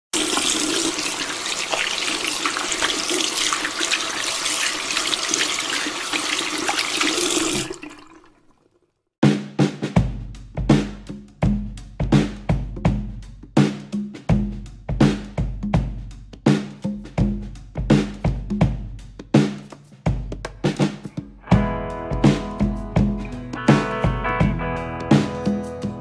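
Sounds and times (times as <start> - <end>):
tap water running over hands: 0.1 - 8.8
music with drum beat: 9.2 - 26.0.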